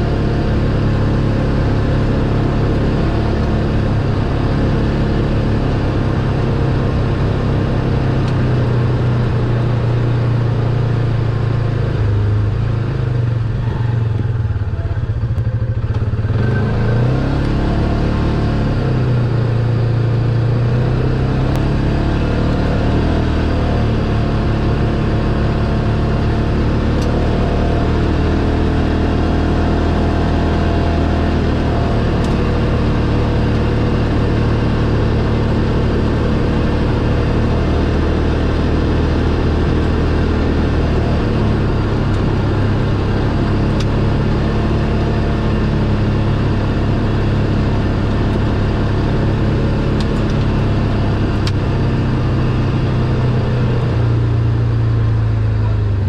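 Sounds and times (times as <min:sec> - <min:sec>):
single-cylinder engine running: 0:00.0 - 0:56.0.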